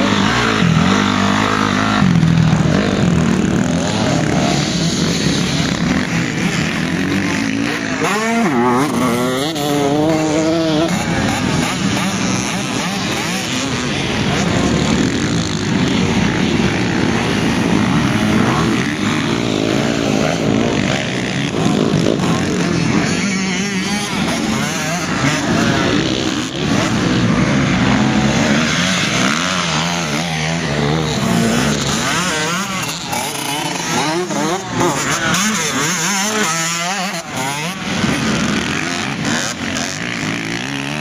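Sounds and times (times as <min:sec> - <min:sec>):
dirt bike engines revving: 0:00.0 - 0:41.0.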